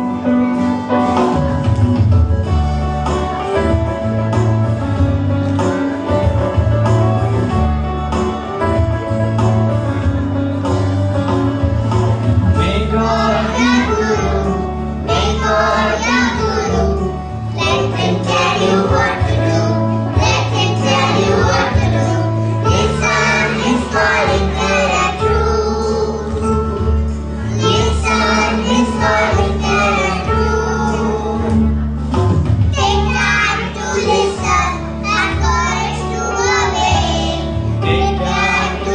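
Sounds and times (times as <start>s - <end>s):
low backing music: 0.0s - 38.9s
children singing in chorus: 12.7s - 26.4s, 27.5s - 31.6s, 32.8s - 37.5s.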